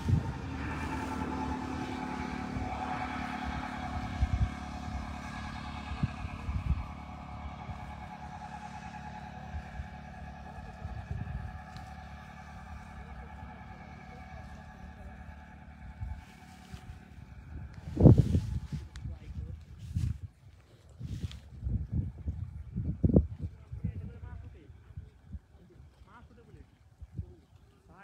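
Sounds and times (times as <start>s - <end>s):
small engine running: 0.0s - 28.0s
wind thumps on microphone: 17.5s - 20.3s.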